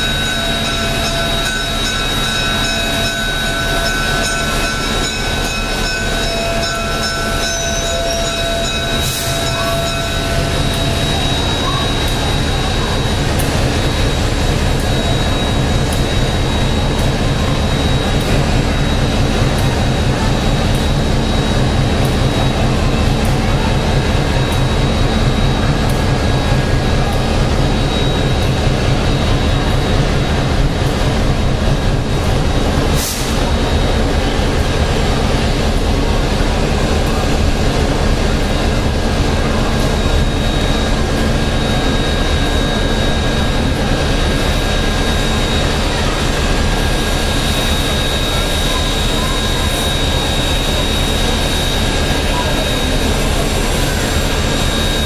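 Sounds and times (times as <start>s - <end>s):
steam locomotive hiss and rumble: 0.0s - 55.0s
thin high whine: 31.7s - 55.0s.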